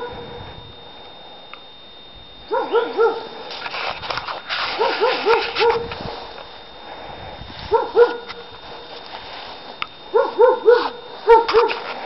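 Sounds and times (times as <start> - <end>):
dog barking: 2.5 - 3.4, 4.7 - 5.8, 7.7 - 8.4, 10.1 - 11.8.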